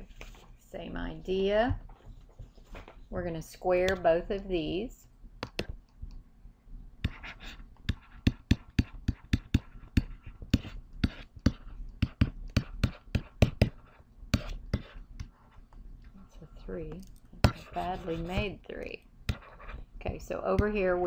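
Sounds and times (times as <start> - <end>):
stylus tapping on tablet: 5.4 - 5.8, 7.0 - 15.4, 19.3 - 21.0
stylus scratching strokes: 7.0 - 15.7, 17.4 - 18.6, 19.3 - 19.9.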